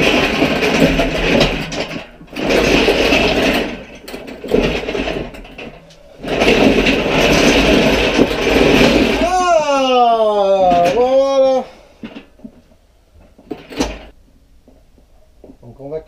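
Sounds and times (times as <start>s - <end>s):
steel castors grinding over tiles: 0.0s - 9.6s.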